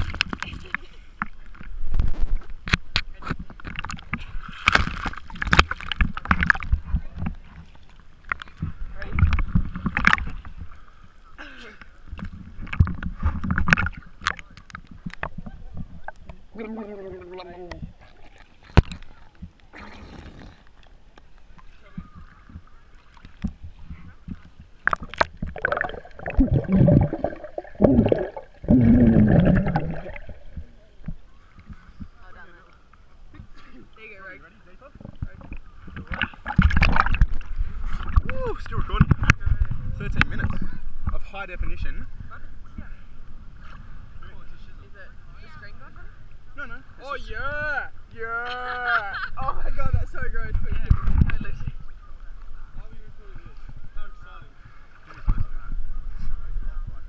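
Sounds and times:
water splashing against camera: 0.0 - 11.2, 11.8 - 42.0, 49.8 - 52.7
low underwater rumbling: 20.4 - 33.6, 34.6 - 44.2
underwater gurgling bubbles: 24.8 - 31.8, 35.0 - 38.3
low muffled bumps: 25.0 - 31.2.

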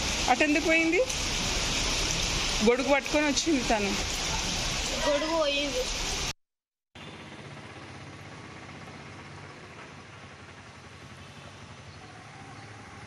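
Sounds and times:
even hiss of rain: 0.0 - 6.3.

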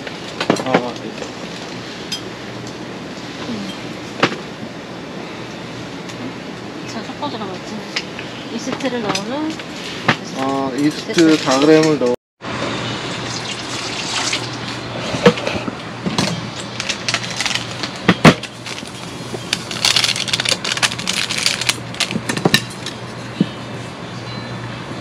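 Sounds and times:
water pouring into bowl: 13.1 - 14.6.

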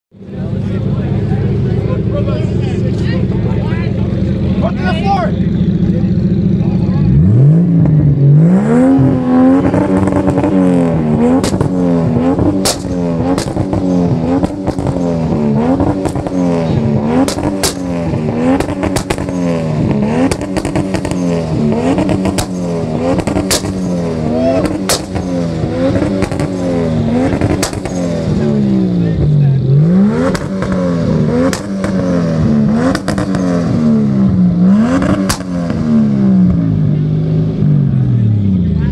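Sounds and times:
car engine revving hard: 4.2 - 38.9
exhaust pops and bangs: 9.6 - 28.6, 30.2 - 33.8, 34.9 - 36.7.

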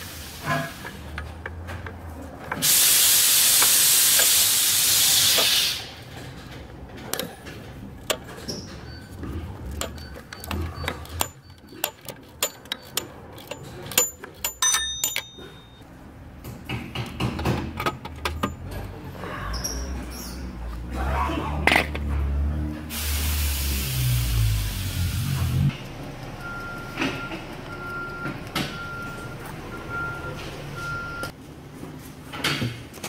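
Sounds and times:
loud hiss: 2.6 - 6.0, 22.9 - 25.7
socket wrench clicking: 9.8 - 15.5
metal ringing clink: 9.8 - 15.8.

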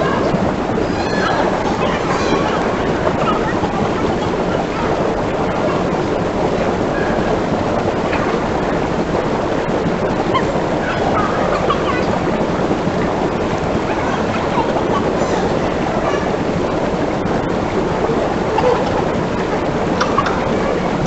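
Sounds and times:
hot tub jets bubbling water: 0.0 - 21.0.

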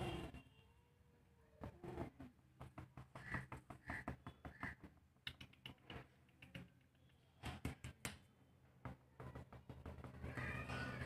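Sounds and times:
puppy claws tapping on concrete: 2.5 - 10.9.

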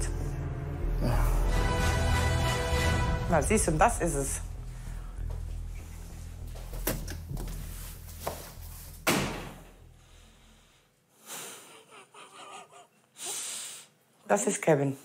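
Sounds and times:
door banging shut: 9.0 - 9.8.

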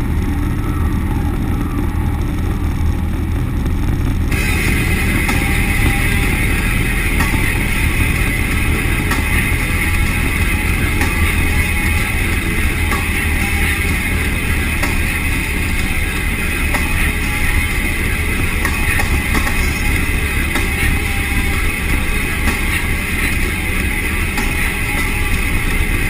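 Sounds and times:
truck engine droning: 0.0 - 26.0
rock music with drums and guitar: 4.0 - 26.0.

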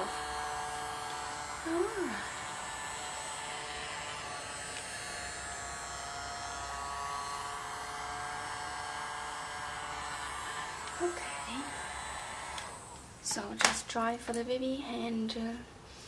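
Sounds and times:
hair dryer running: 0.0 - 13.8.

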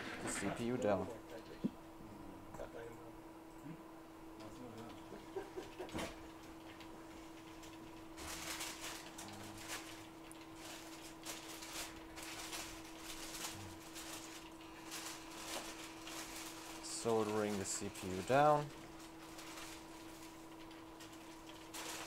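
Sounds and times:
hot air blower hissing: 0.0 - 1.0
steady low hum: 0.0 - 22.0.

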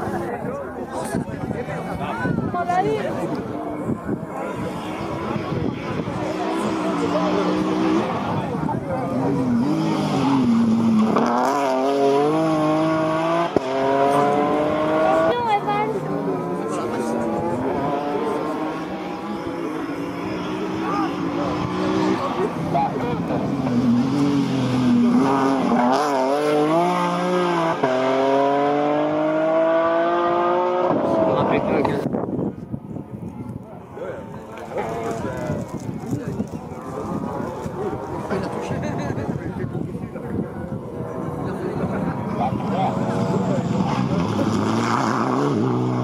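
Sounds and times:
rally car engines revving: 0.0 - 46.0
car accelerating away: 4.6 - 32.1, 40.6 - 46.0.

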